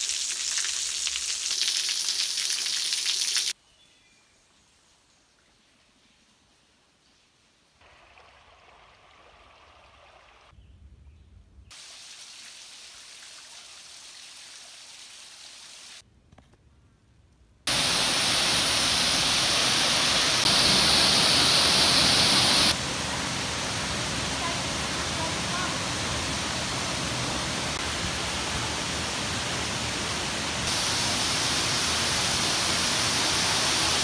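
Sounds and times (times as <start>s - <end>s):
waterfall pouring into pool: 0.0s - 3.6s, 17.7s - 34.0s
faint water noise: 4.5s - 10.5s.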